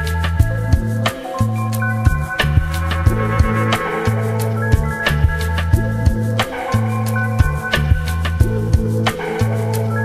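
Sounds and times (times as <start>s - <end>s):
held bass line: 0.0s - 10.0s
drum hits: 2.2s - 6.2s.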